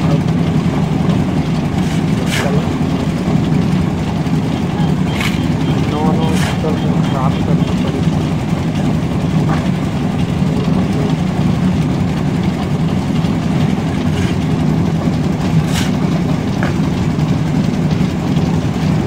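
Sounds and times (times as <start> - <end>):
concrete mixer engine running: 0.0 - 19.0
shovel scraping wet concrete: 1.7 - 2.8, 5.1 - 6.8, 13.8 - 14.6, 15.5 - 16.0.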